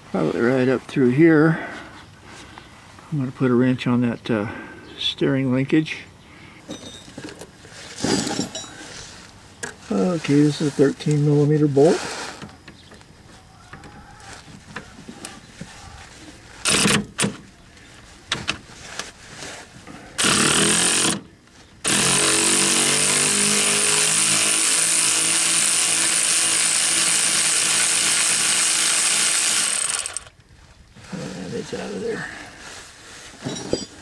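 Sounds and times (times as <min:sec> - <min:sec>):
power tool unscrewing bolt: 0:16.6 - 0:17.4, 0:29.2 - 0:30.3.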